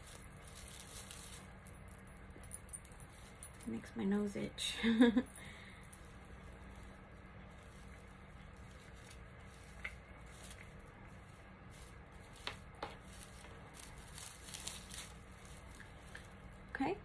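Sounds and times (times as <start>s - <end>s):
dry raffia rustling: 0.0s - 1.8s, 2.7s - 16.9s.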